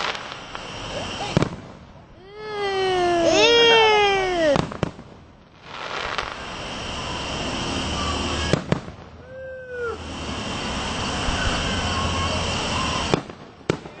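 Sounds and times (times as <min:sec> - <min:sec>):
aerial fireworks: 0:00.0 - 0:14.0
sharp firework bang: 0:07.6 - 0:09.0, 0:11.0 - 0:14.0.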